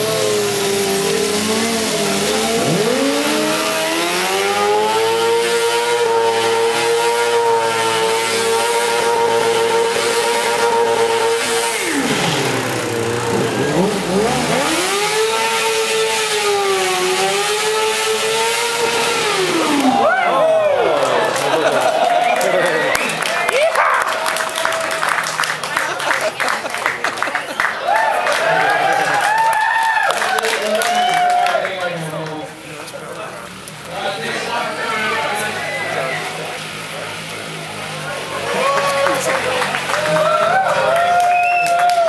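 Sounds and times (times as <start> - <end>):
motorcycle engine revving: 0.0 - 20.0, 34.4 - 41.0.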